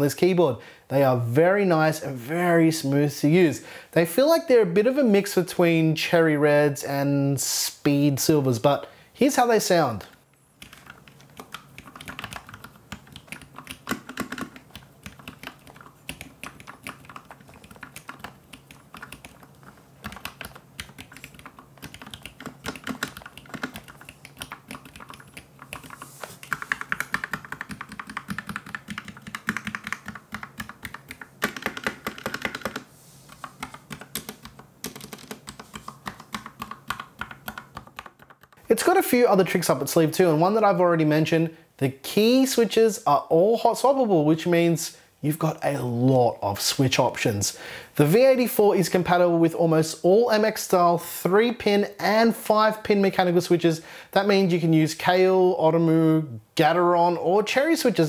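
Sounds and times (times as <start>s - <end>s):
mechanical keyboard typing: 10.6s - 38.6s.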